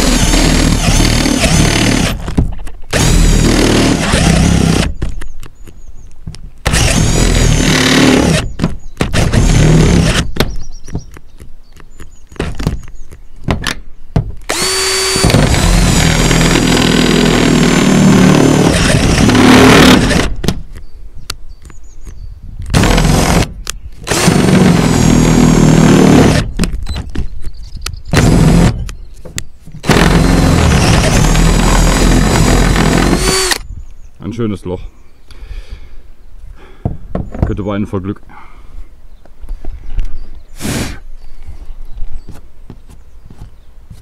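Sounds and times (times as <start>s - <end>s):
cordless drill cutting sheet metal: 0.0s - 2.2s, 2.9s - 5.0s, 6.6s - 10.3s, 14.5s - 20.4s, 22.7s - 26.6s, 28.1s - 28.9s, 29.8s - 33.6s.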